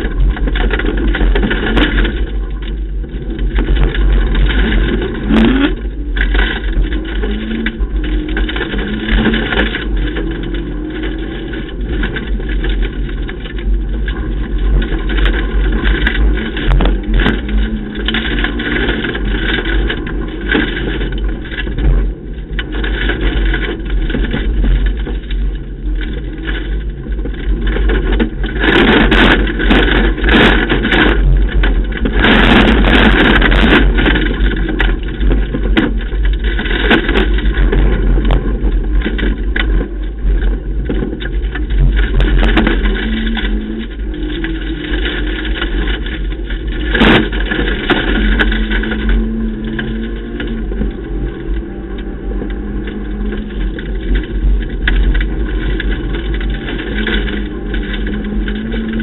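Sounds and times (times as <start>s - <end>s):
rally car engine working hard: 0.0s - 59.0s
road and tyre noise: 0.0s - 59.0s.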